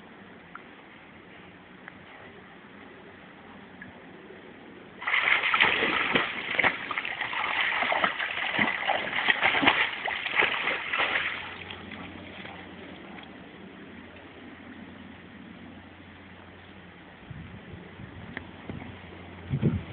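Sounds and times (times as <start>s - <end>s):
dog splashing in water: 5.0s - 12.8s.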